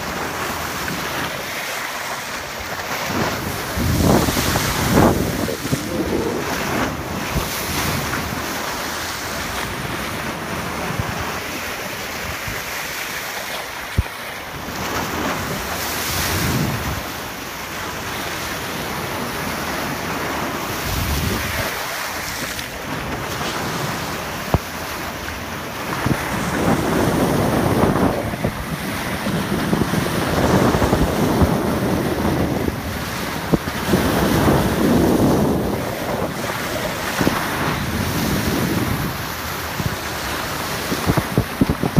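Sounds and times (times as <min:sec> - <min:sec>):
water rushing along boat bow: 0:00.0 - 0:41.9
wind buffeting microphone: 0:02.4 - 0:13.0, 0:13.9 - 0:41.9.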